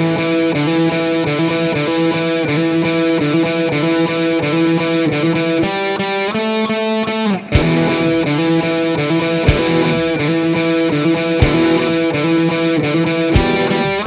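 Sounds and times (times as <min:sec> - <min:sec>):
distorted electric guitar chords: 0:00.0 - 0:14.0
sharp hit: 0:07.6 - 0:10.7, 0:11.4 - 0:12.4, 0:13.4 - 0:14.0.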